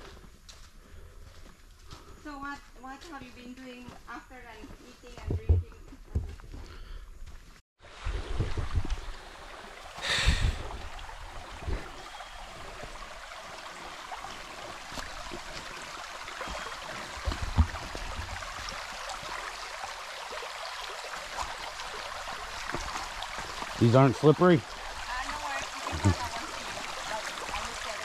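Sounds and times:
stream babbling over rocks: 7.8 - 28.0.

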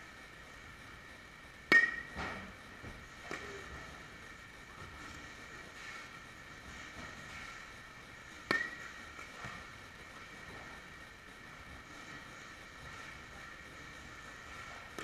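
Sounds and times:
steady hum: 0.0 - 15.0
bat cracking a ball: 1.6 - 2.4, 8.4 - 9.0.

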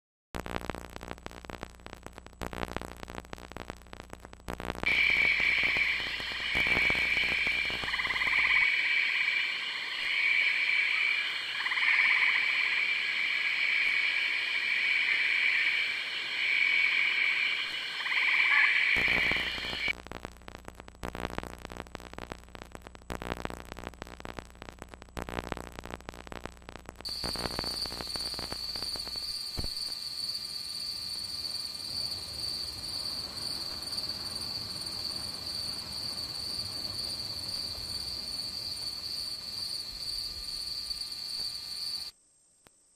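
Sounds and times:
crackling clicking noise: 0.4 - 8.7, 17.7 - 30.0
frogs calling in chorus: 4.9 - 19.9.

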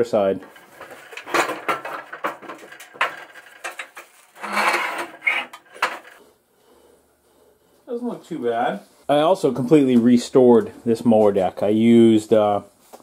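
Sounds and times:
metal clanks and knocks: 0.4 - 6.2
metal scraping rush: 0.5 - 6.2.

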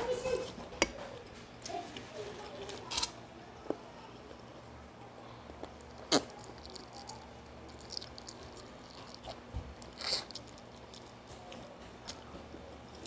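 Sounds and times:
wet chewing: 5.5 - 13.0.

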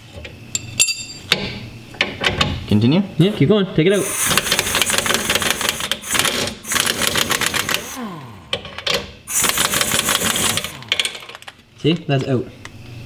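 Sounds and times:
impact wrench rattling: 4.0 - 11.6.

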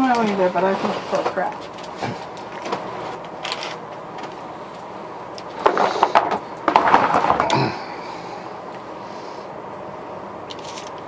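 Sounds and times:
plastic bottles clattering in a tub: 5.6 - 7.8.

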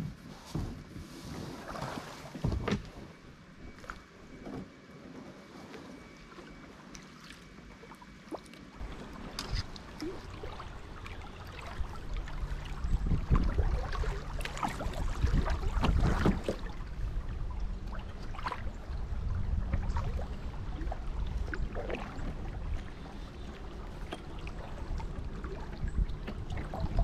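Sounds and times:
river water splashing against kayak: 6.9 - 27.0
low rumble: 8.8 - 27.0.

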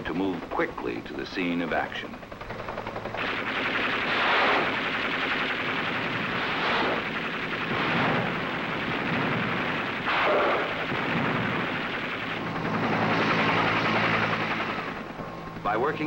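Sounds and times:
rapid machine-gun fire: 2.3 - 15.2.

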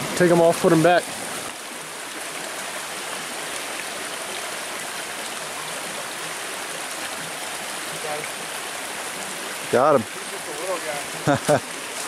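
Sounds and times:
stream running over stones: 0.0 - 12.0.

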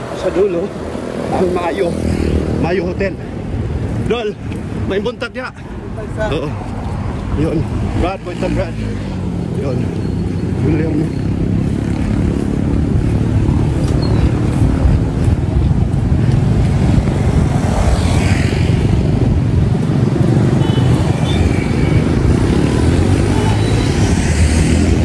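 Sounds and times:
motorcycles passing: 0.0 - 25.0
road traffic: 0.0 - 25.0
wind buffeting microphone: 11.1 - 25.0.

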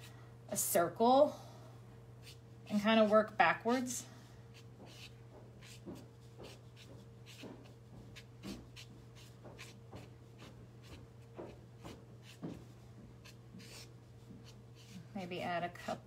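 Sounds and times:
pen scratching on paper: 4.5 - 12.6, 13.2 - 15.0.

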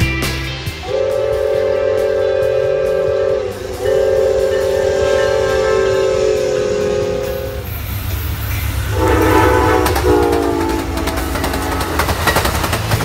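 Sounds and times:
passing train rumble and clatter: 0.0 - 13.0
locomotive air horns: 0.8 - 12.1.

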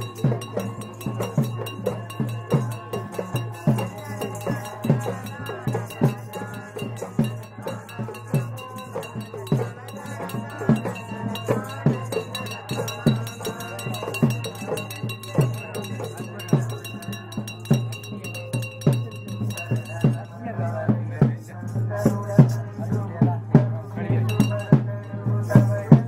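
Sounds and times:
steady high ringing: 0.0 - 20.6, 24.2 - 26.0
heavy drum strokes: 0.0 - 26.0.

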